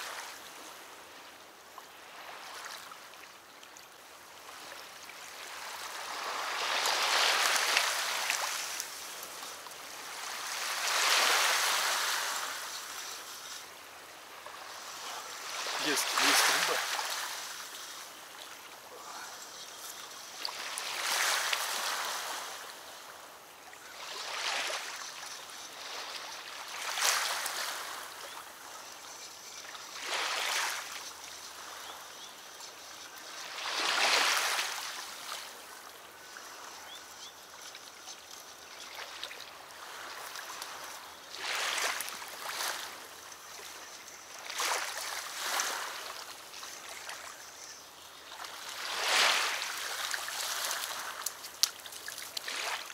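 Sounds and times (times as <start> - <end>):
small waves lapping: 0.0 - 52.9.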